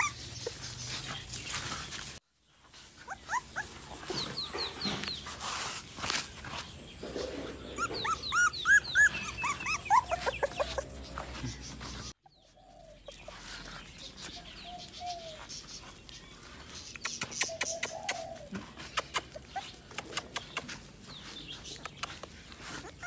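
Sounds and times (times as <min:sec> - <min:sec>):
high-pitched animal calls: 0:00.0 - 0:00.8, 0:07.6 - 0:11.4.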